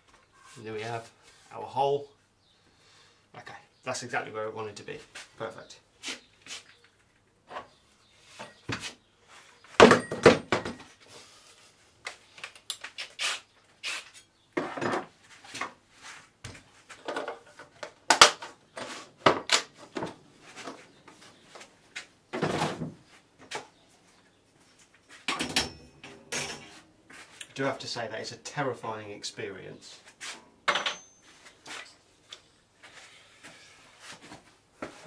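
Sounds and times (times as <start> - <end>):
tools and wood clattering: 8.4 - 8.9, 9.7 - 11.0, 14.6 - 15.8, 16.6 - 21.2, 22.3 - 23.7, 25.0 - 26.8, 30.6 - 32.4.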